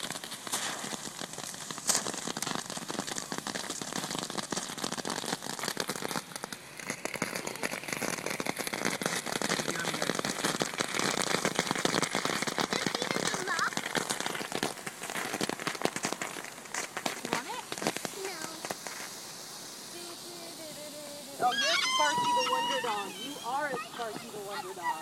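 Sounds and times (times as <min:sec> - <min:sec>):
sharp pop: 0:00.0 - 0:01.0
firework crackling hiss: 0:00.0 - 0:25.0.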